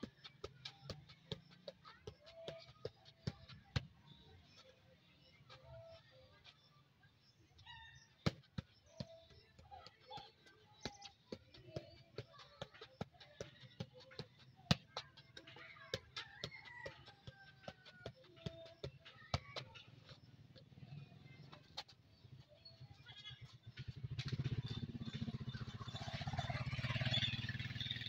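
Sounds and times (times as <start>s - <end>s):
football touches while juggling: 0.0s - 6.6s, 7.6s - 22.2s.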